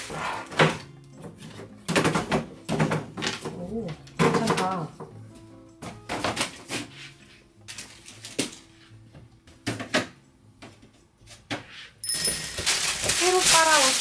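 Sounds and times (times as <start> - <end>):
wooden baskets knocking: 0.5 - 5.2
duvet being shaken: 12.6 - 14.0.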